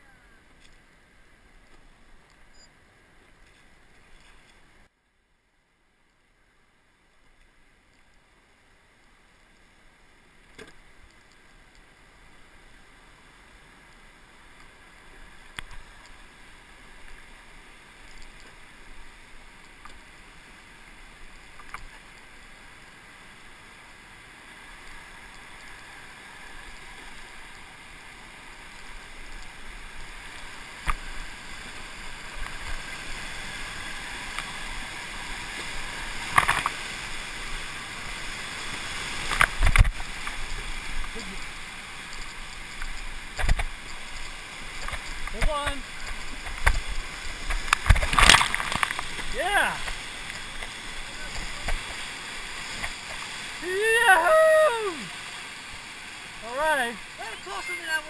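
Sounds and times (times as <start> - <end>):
rushing whitewater: 6.4 - 58.0
water splashing over bow: 30.0 - 57.9.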